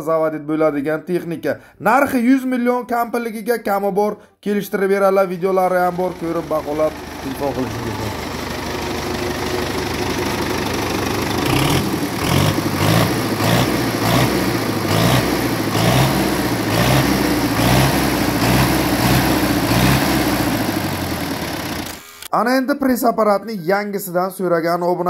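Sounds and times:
diesel tractor engine idling: 5.5s - 22.1s.

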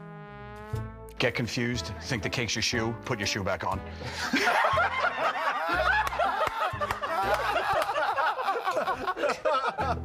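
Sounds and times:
people laughing hard: 4.1s - 10.0s.

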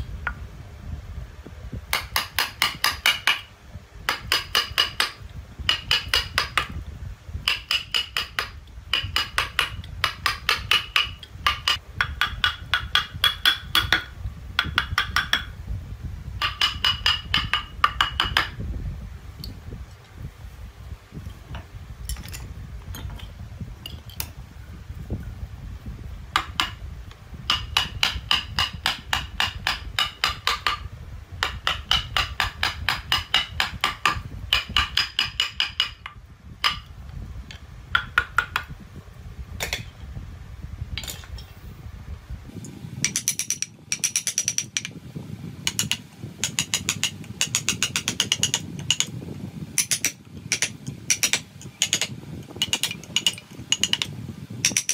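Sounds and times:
hammer tapping chisel into wood: 1.9s - 3.5s, 4.1s - 6.8s, 7.4s - 15.5s, 16.4s - 18.6s, 26.4s - 26.8s, 27.5s - 36.9s, 37.9s - 38.7s, 43.0s - 44.9s, 45.6s - 49.1s, 49.8s - 54.9s.

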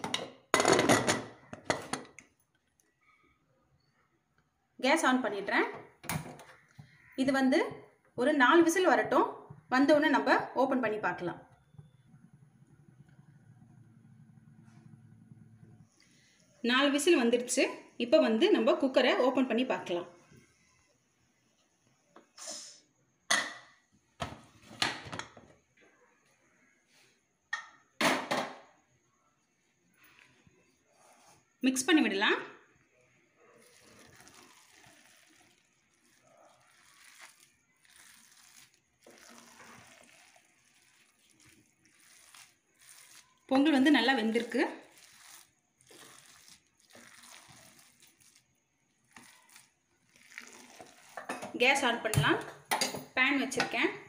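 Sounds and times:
spoon squishing soft rice: 33.5s - 51.3s.

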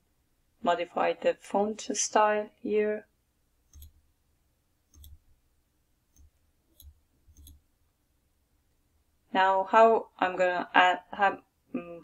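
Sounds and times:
faint computer mouse clicks: 3.7s - 4.0s, 4.9s - 5.2s, 6.1s - 7.6s.

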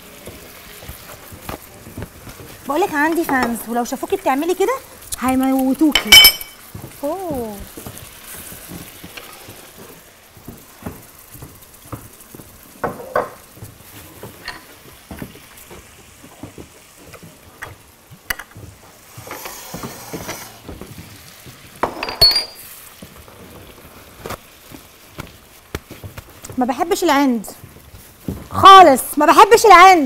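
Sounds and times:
light sizzle: 0.0s - 30.0s
small bowls clinking: 5.9s - 6.7s, 14.4s - 14.7s, 21.8s - 22.7s
spatulas scraping in frying pans: 7.9s - 10.2s, 18.9s - 21.0s.

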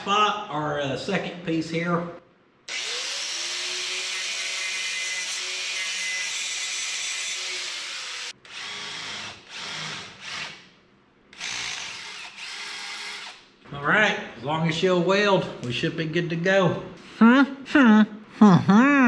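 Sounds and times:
angle grinder grinding metal: 2.7s - 8.4s.

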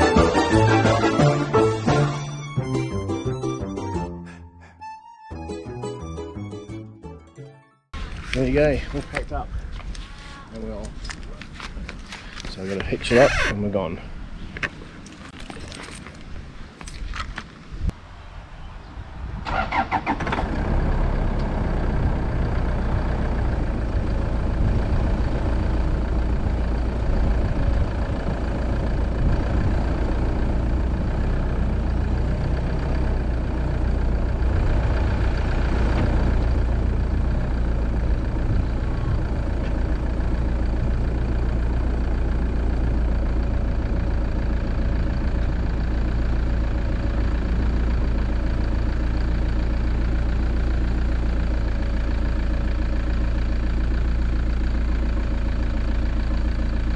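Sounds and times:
vehicle engine starting and idling: 19.3s - 56.9s.

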